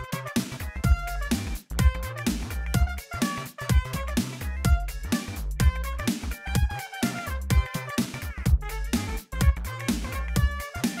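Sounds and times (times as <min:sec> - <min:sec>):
upbeat electronic dance music: 0:00.0 - 0:11.0.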